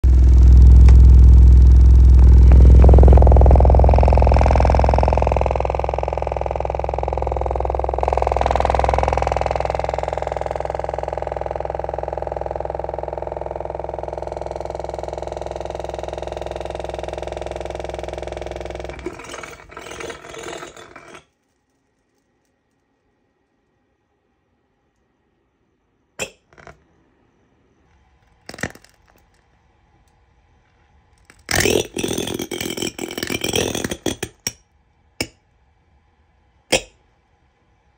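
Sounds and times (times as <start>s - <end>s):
speaker crackling bursts: 0.0s - 19.3s
distorted subwoofer bass tone: 0.0s - 20.0s.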